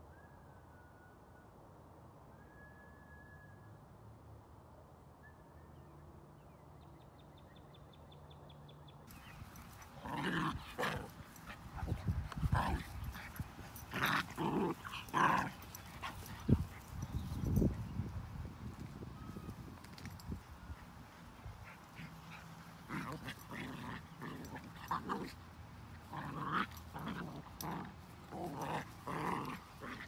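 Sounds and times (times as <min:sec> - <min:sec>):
dogs growling and barking: 0:09.1 - 0:17.8, 0:21.6 - 0:30.0.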